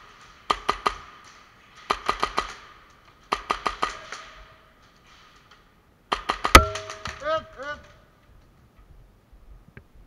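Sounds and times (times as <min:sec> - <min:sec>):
airsoft gun shots: 0:06.1 - 0:07.3.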